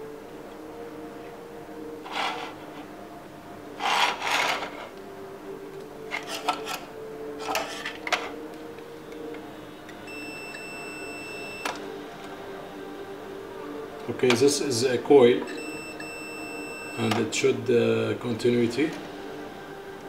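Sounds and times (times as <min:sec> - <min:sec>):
circuit board rubbing and scraping: 0:02.0 - 0:02.9, 0:03.8 - 0:05.0
faint high steady tone: 0:09.0 - 0:14.1, 0:15.2 - 0:17.4.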